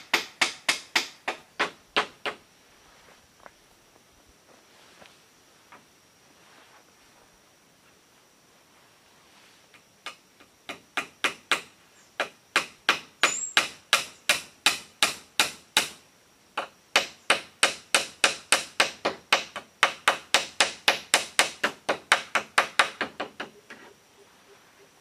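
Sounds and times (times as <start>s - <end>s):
hammer blows on bamboo: 0.0s - 2.4s, 9.7s - 16.0s, 16.6s - 23.9s.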